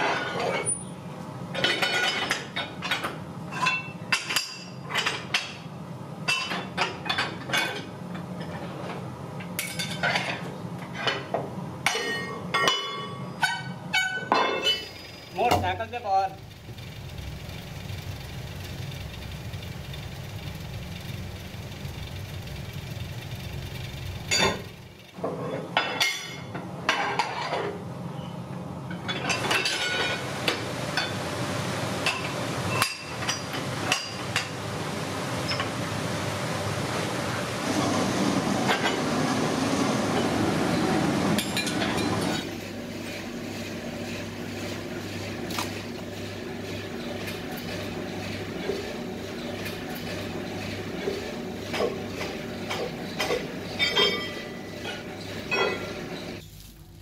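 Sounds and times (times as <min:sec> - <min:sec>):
steady machine hum: 0:11.6 - 0:26.9, 0:27.8 - 0:57.0.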